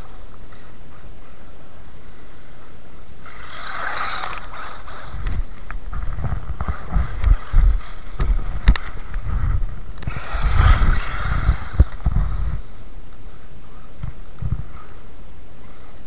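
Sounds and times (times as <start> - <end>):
rc car driving over snow: 3.2 - 12.8
low thumps and rumbles: 5.1 - 12.8, 14.0 - 14.9.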